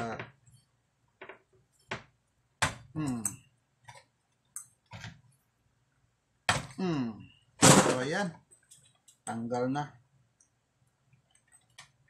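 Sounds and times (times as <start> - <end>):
person grunting: 6.8 - 7.2.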